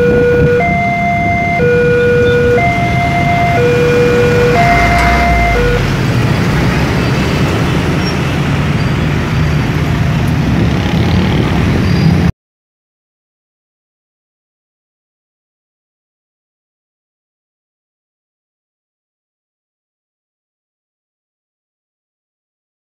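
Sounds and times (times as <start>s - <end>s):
level-crossing alarm two-tone warning: 0.0s - 6.0s
road traffic: 0.0s - 12.3s.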